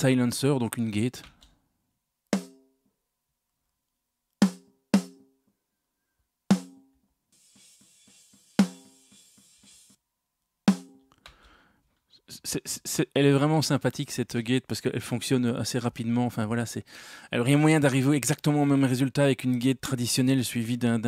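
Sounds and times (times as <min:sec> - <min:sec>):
faint hiss: 0:07.4 - 0:10.0
snare drum hits: 0:07.8 - 0:09.8.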